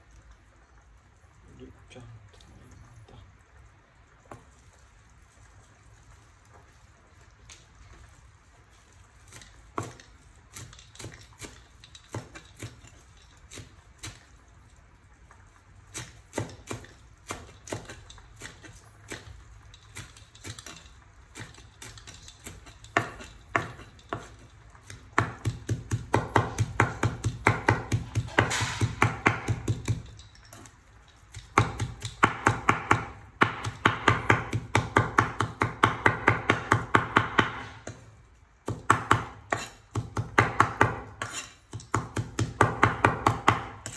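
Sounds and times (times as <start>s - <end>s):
cleaver chopping on wooden board: 24.9s - 30.0s, 31.4s - 38.0s, 38.7s - 43.9s.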